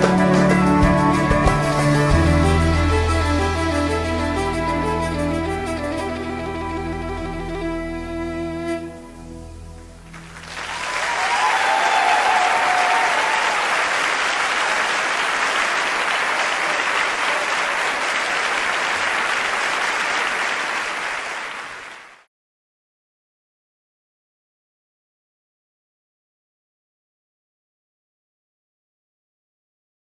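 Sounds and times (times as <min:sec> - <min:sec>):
audience applauding and cheering: 0:10.1 - 0:22.3
person whooping: 0:10.7 - 0:13.8.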